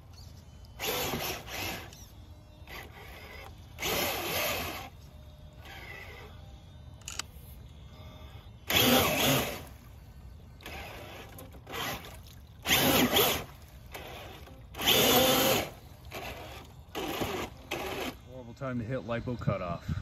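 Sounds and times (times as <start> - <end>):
rc truck motor bursts: 0.0 - 18.4
wheels churning water: 10.6 - 18.5.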